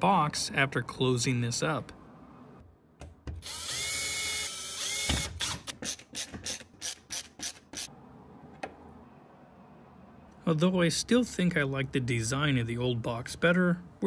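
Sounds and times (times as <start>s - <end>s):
drill motor whirring: 3.4s - 7.9s.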